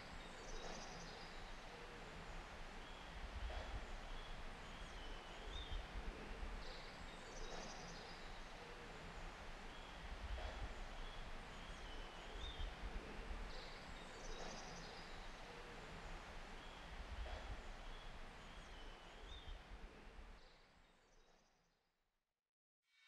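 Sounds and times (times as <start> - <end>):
low rumble and hiss: 0.0 - 20.4.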